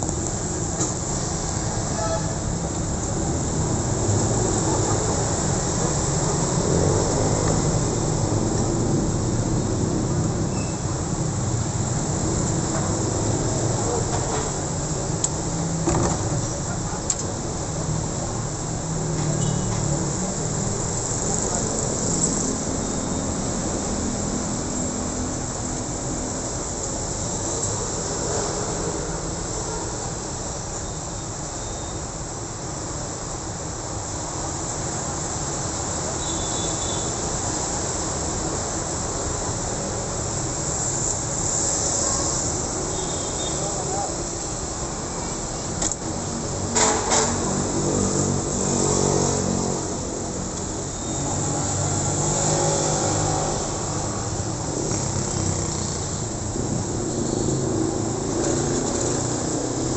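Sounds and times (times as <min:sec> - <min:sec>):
cars and motorcycles passing: 0:00.0 - 0:30.8, 0:32.7 - 0:59.9
motorcycles and scooters passing: 0:47.3 - 0:59.9.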